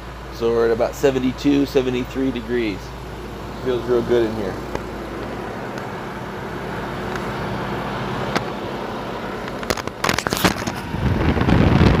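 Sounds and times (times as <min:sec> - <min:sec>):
air conditioner blowing air: 0:00.0 - 0:12.0
sharp clicks and crackles: 0:08.3 - 0:08.6, 0:09.4 - 0:12.0
wind buffeting microphone: 0:09.9 - 0:12.0.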